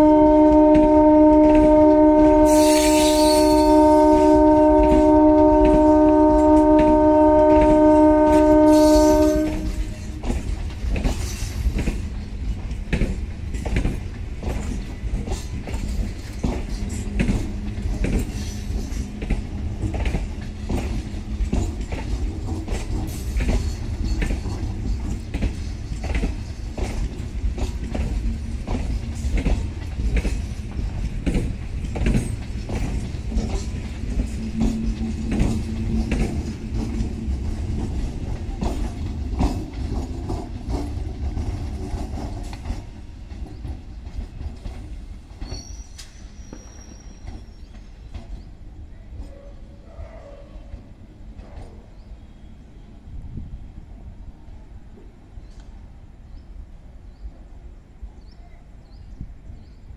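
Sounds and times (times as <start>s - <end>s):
train horn multi-tone chord: 0.0s - 10.1s
train rumble: 0.0s - 59.9s
wheels clicking over rail joints: 0.4s - 49.4s.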